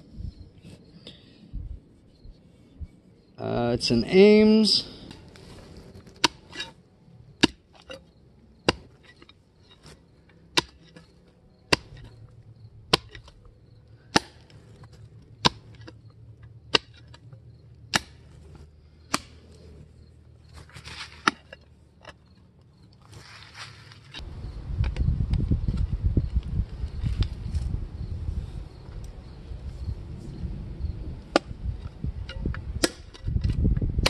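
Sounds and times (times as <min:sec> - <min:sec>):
shovel chopping into rocky soil: 0:06.2 - 0:06.8, 0:10.6 - 0:11.1, 0:11.7 - 0:12.1, 0:12.9 - 0:13.4, 0:14.1 - 0:14.6, 0:15.4 - 0:15.9, 0:16.7 - 0:17.2, 0:17.9 - 0:18.4, 0:19.1 - 0:19.4, 0:20.6 - 0:21.6.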